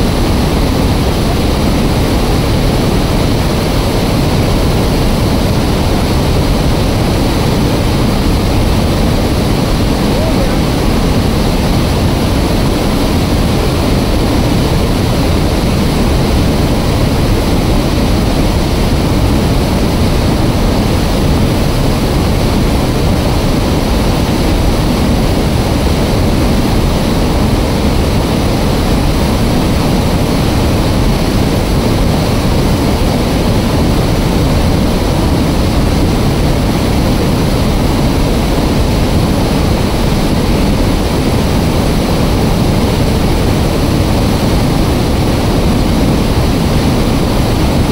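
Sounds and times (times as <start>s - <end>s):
water rushing through dam spillway: 0.0s - 47.9s.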